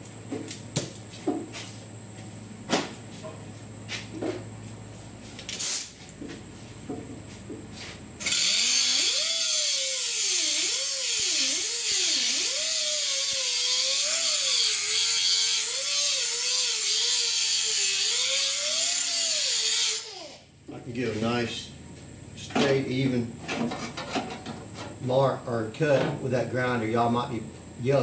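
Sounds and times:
angle grinder cutting steel: 8.2s - 20.4s.

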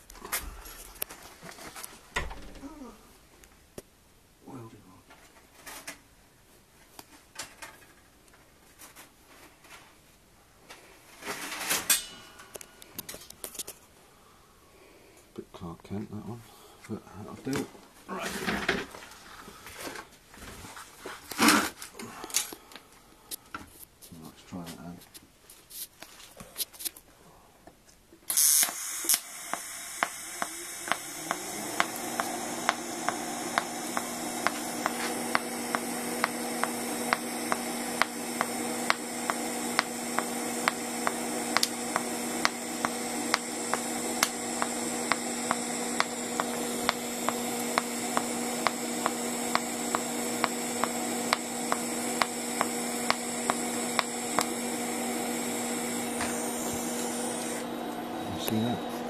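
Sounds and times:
welder arc striking: 28.3s - 57.6s
welding arc hum: 28.3s - 59.0s.

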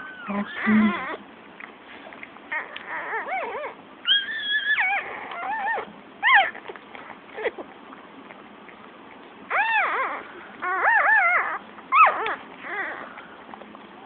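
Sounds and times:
puppies crying: 0.0s - 1.3s, 2.5s - 7.8s, 9.5s - 13.6s.

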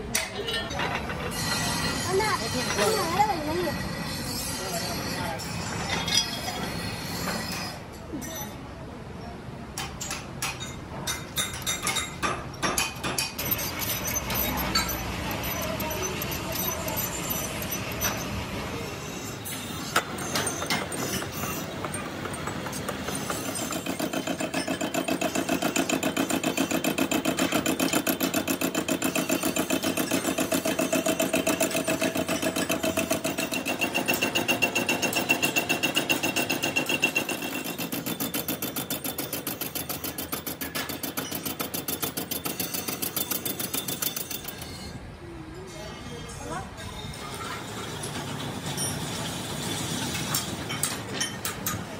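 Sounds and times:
lathe cutter chatter with ringing: 1.1s - 7.8s, 13.4s - 45.1s
metal clinks: 9.8s - 18.4s, 29.1s - 45.0s.

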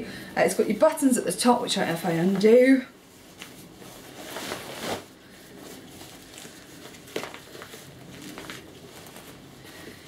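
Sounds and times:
fabric rustling and crinkling: 2.1s - 10.0s.

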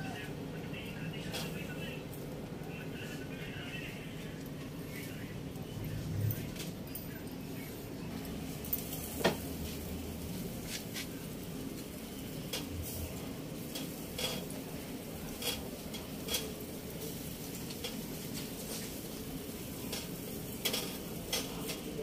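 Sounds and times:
faint sizzle: 0.0s - 22.0s
tongs clicking on grill grate: 13.6s - 14.5s, 15.3s - 16.6s, 19.9s - 21.9s.

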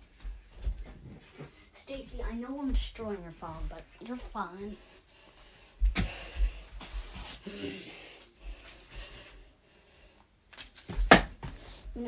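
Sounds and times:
footsteps: 0.0s - 9.6s.

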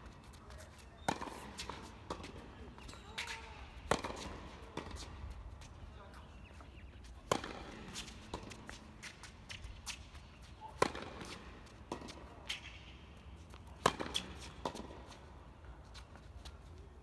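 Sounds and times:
racket striking tennis ball: 1.0s - 2.4s, 3.2s - 5.1s, 7.2s - 10.0s, 10.8s - 12.9s, 13.8s - 15.2s
tennis ball bounces: 1.0s - 5.7s, 7.2s - 15.3s.

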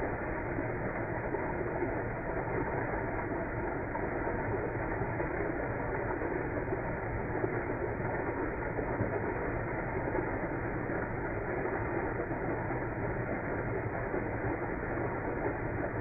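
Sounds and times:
low muffled water rush: 0.0s - 16.0s.

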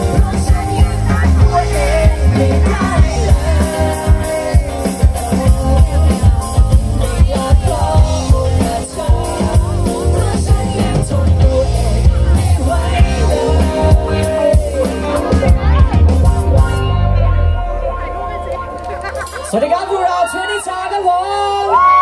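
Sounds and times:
man singing: 0.0s - 17.0s
drum kit: 0.0s - 19.5s
bass guitar: 0.0s - 19.7s
electric guitar: 0.0s - 19.7s
keyboard: 0.0s - 21.6s.

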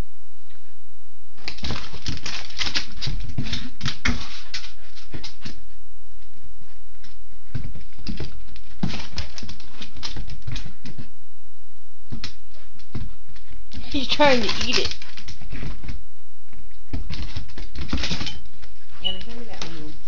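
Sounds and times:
dog claws clicking on wood floor: 1.4s - 5.6s, 7.0s - 11.1s, 12.1s - 16.0s, 16.9s - 18.4s.

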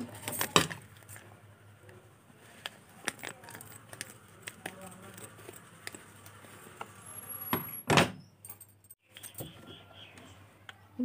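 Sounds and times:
paper sachet crinkling: 2.4s - 6.8s.

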